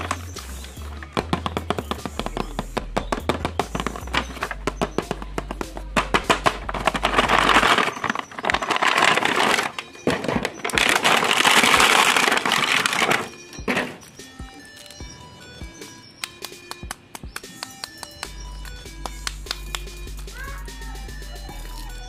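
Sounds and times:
background music with bass: 0:00.0 - 0:07.9, 0:17.2 - 0:22.0
cardboard and plastic crinkling: 0:06.0 - 0:14.1.

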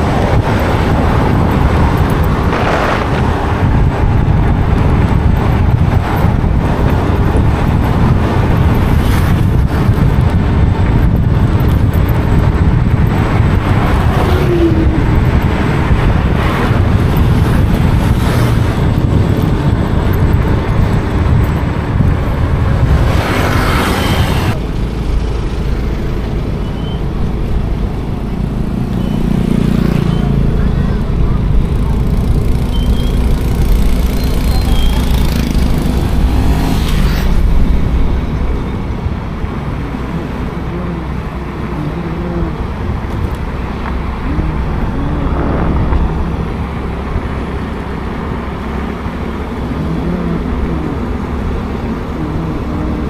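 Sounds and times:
road traffic rumble: 0:00.0 - 0:53.0.

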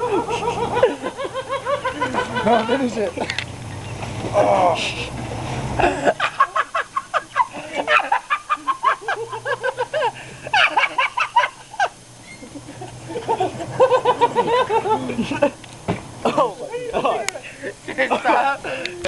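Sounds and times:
people laughing hysterically: 0:00.0 - 0:02.8, 0:05.8 - 0:15.6, 0:17.9 - 0:18.9.

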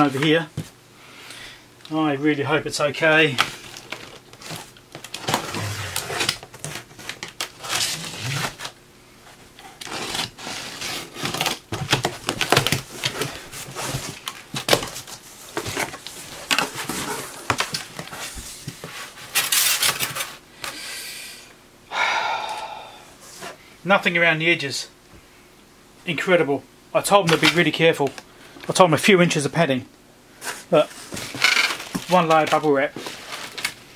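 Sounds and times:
cardboard and tape tearing: 0:03.4 - 0:08.8, 0:09.7 - 0:18.3, 0:18.9 - 0:20.4.

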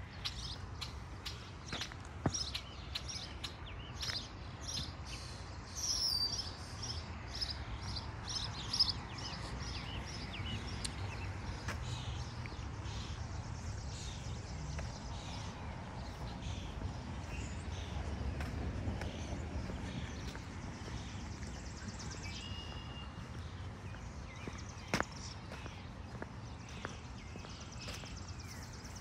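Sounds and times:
songbirds chirping and singing: 0:00.0 - 0:29.0.

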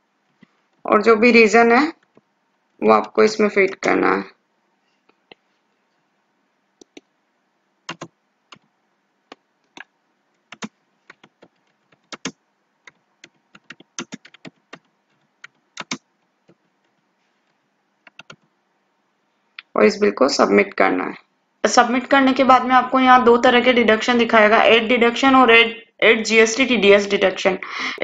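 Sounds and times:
keyboard typing: 0:06.8 - 0:07.1, 0:07.8 - 0:08.7, 0:09.3 - 0:18.5.

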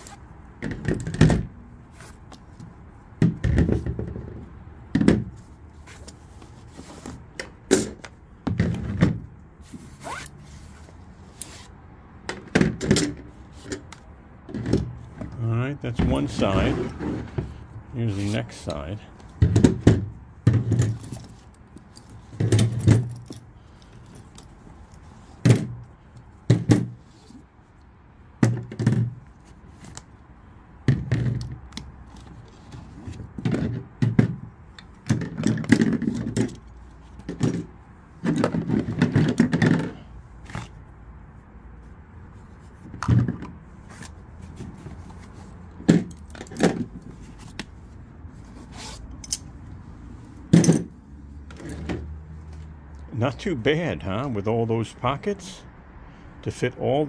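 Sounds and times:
rummaging clatter in tool bag: 0:19.4 - 0:25.9, 0:32.1 - 0:40.8, 0:50.5 - 0:52.0.

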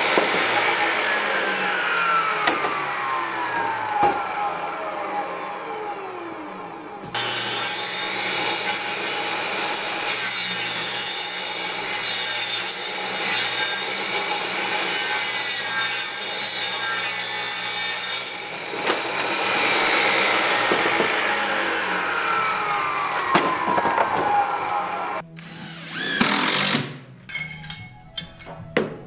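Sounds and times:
saw motor winding down: 0:00.0 - 0:08.8, 0:18.4 - 0:26.9
table saw cutting wood: 0:00.0 - 0:27.0.

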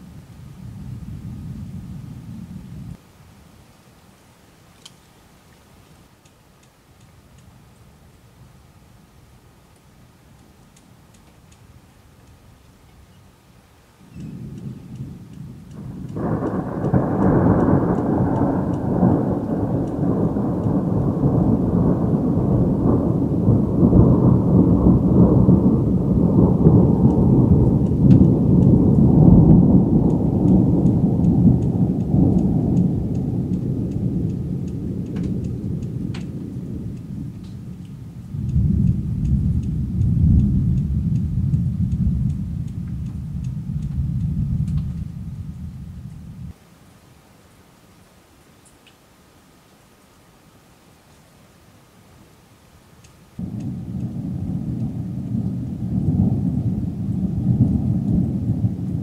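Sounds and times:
thunder rumbling low: 0:00.0 - 0:03.0, 0:14.0 - 0:46.6, 0:53.4 - 0:59.0
light rain ticking: 0:00.0 - 0:59.0.

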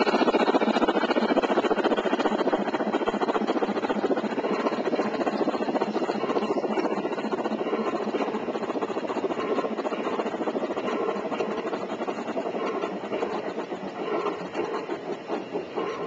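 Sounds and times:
model train clattering on track: 0:00.0 - 0:16.0.

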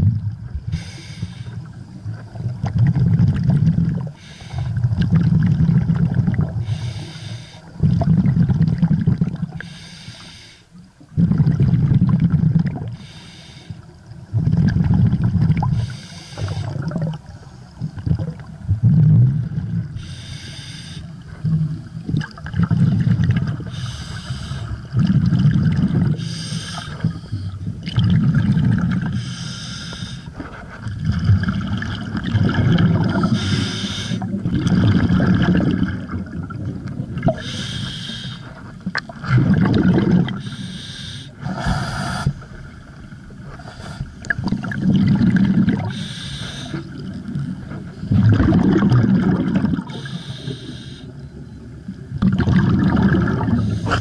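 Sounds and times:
regulator inhale hiss: 0:00.7 - 0:01.8, 0:04.1 - 0:04.8, 0:06.6 - 0:07.8, 0:09.5 - 0:10.8, 0:12.9 - 0:14.0, 0:15.7 - 0:16.8, 0:19.9 - 0:21.3, 0:23.6 - 0:24.9, 0:26.1 - 0:27.6, 0:29.1 - 0:30.6, 0:33.2 - 0:34.3, 0:37.4 - 0:38.7, 0:40.4 - 0:42.6, 0:43.5 - 0:44.2, 0:45.8 - 0:47.0, 0:49.9 - 0:51.2, 0:53.6 - 0:54.0
exhaled bubbling burst: 0:02.2 - 0:04.2, 0:04.8 - 0:06.6, 0:07.8 - 0:09.6, 0:11.2 - 0:12.9, 0:14.3 - 0:15.8, 0:16.6 - 0:19.9, 0:21.4 - 0:23.7, 0:24.9 - 0:26.2, 0:26.9 - 0:29.2, 0:30.9 - 0:33.6, 0:34.2 - 0:37.4, 0:39.0 - 0:40.4, 0:44.2 - 0:46.0, 0:46.9 - 0:50.0, 0:52.2 - 0:54.0.

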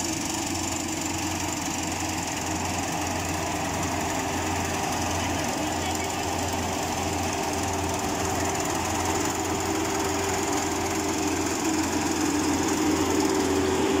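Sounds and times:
combine harvester engine drone: 0:00.0 - 0:14.0.

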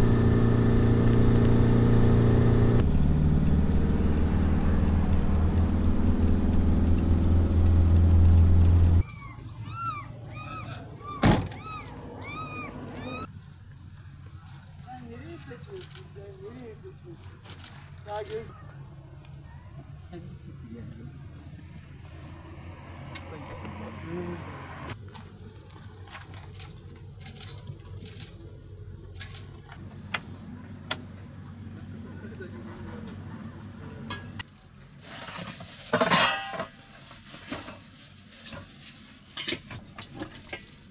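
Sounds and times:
low steady rumble: 0:00.0 - 0:14.8
van engine and road noise: 0:00.0 - 0:40.9
small animal crying: 0:09.0 - 0:13.3.

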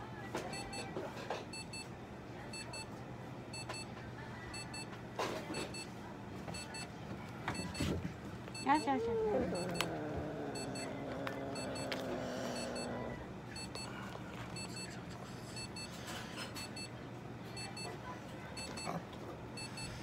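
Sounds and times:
cat yowling: 0:09.0 - 0:13.2.

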